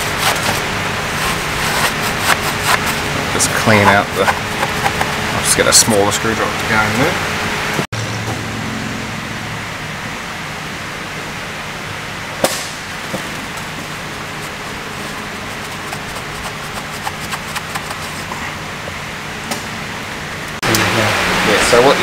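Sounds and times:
faint hum: 0.0 - 22.0
workshop fan hiss: 9.8 - 22.0.

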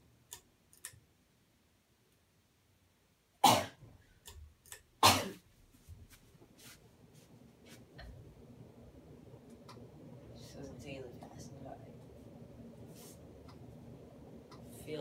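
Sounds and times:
person sneezing loudly: 3.4 - 3.8, 5.0 - 5.4.

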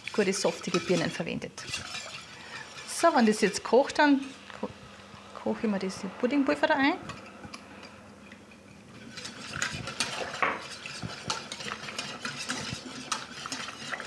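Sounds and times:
whisk clicking in metal pot: 0.0 - 3.8, 9.0 - 14.0.

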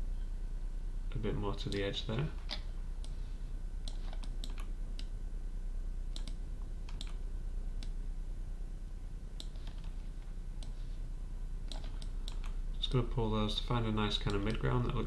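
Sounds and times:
low electrical hum: 0.0 - 15.0
mouse and keyboard clicks: 3.9 - 5.1, 11.7 - 12.5.

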